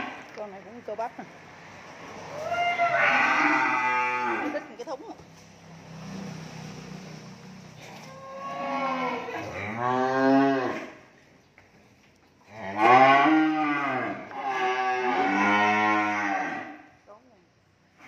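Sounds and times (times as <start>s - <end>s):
cattle mooing: 2.4s - 4.7s, 8.0s - 11.0s, 12.5s - 16.8s.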